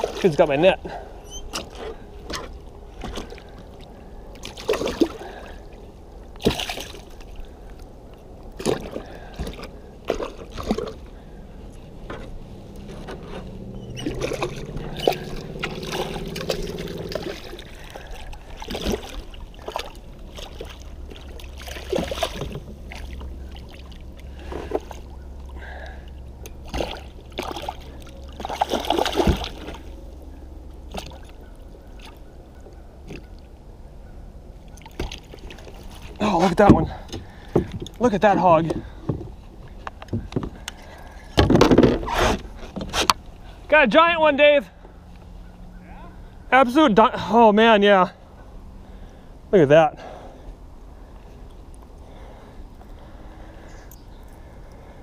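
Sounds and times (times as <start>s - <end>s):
water sloshing against kayak: 0.0s - 43.7s.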